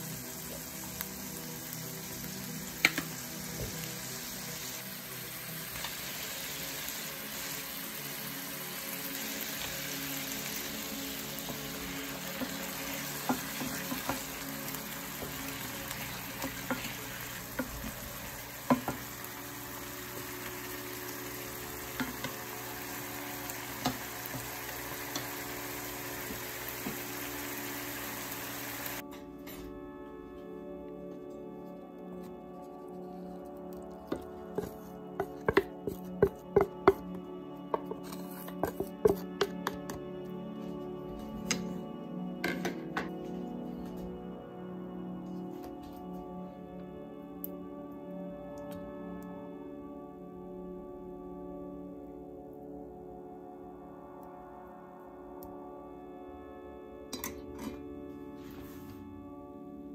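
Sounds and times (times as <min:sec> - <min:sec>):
fish sizzling in a skillet: 0:00.0 - 0:29.0
spatula tapping pan: 0:16.4 - 0:18.0, 0:18.6 - 0:19.2, 0:21.9 - 0:22.4, 0:34.6 - 0:38.0.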